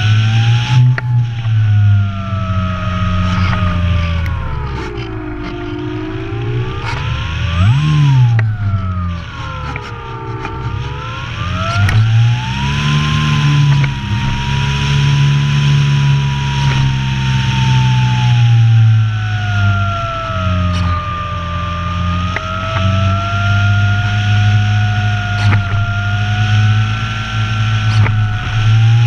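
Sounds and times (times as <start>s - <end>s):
model plane electric motor: 0.0s - 29.0s.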